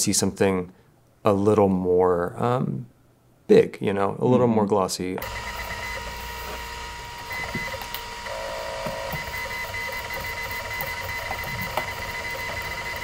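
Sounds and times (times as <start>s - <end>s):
machine hum with whining tones: 5.2s - 13.0s.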